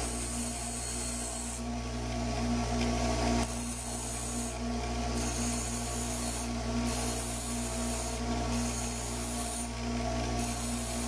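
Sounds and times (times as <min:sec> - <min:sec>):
drill bit grinding on wheel: 0:00.0 - 0:01.6, 0:03.4 - 0:04.6, 0:05.2 - 0:09.7, 0:10.4 - 0:11.0
bench grinder running: 0:00.0 - 0:01.7, 0:03.5 - 0:11.0.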